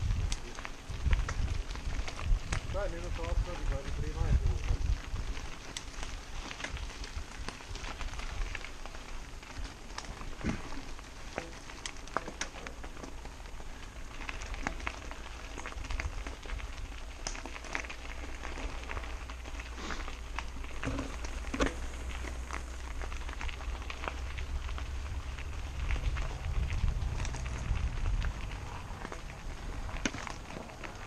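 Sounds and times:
wind rumble on microphone: 0.0s - 10.7s, 20.8s - 31.0s
bike rattling: 0.0s - 31.0s
bike tyres crunching on gravel: 0.0s - 31.0s.

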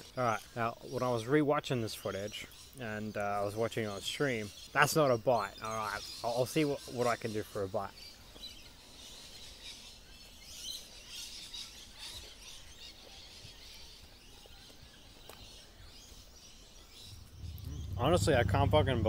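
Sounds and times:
birds chirping: 0.0s - 19.0s
low outdoor background noise: 0.0s - 19.0s.

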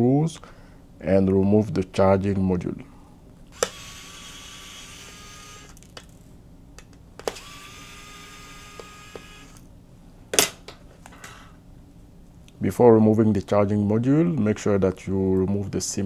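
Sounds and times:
electric screwdriver whining: 3.5s - 6.2s, 7.2s - 9.7s.

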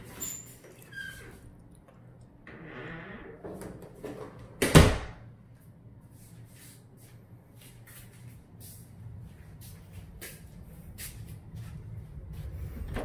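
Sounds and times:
closet door latching shut: 4.6s - 5.2s.

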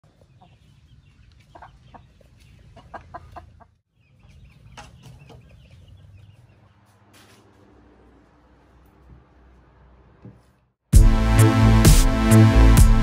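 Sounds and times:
chickens clucking: 0.0s - 7.0s.

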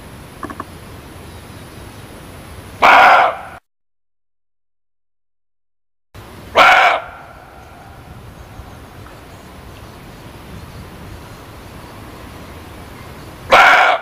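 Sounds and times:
muntjac deer barking: 2.8s - 3.6s, 6.5s - 7.9s, 13.5s - 14.0s.

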